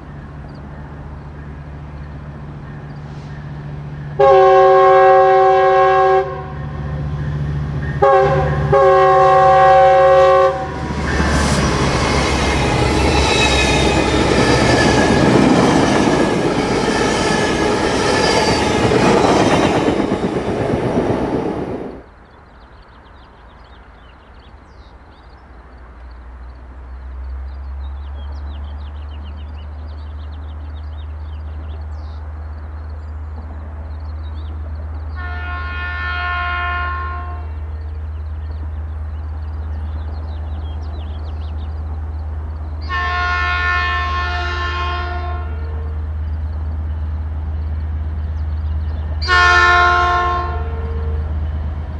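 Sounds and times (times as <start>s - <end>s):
train air horn blasts: 4.2s - 6.8s, 7.8s - 15.3s, 35.2s - 37.6s, 42.8s - 46.0s, 49.2s - 51.2s
train wheels rumbling on rails: 5.9s - 22.3s, 25.7s - 35.4s, 37.2s - 51.9s.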